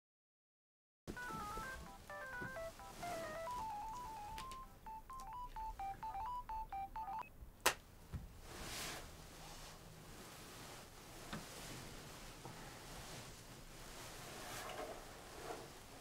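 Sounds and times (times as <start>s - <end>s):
melodic electronic beeps: 1.2s - 7.3s.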